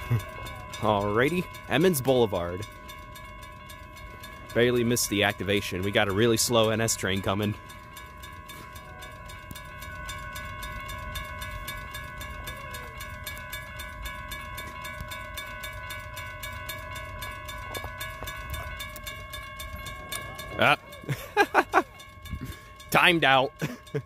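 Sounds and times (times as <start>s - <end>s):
railroad crossing bell ringing: 0.0s - 24.0s.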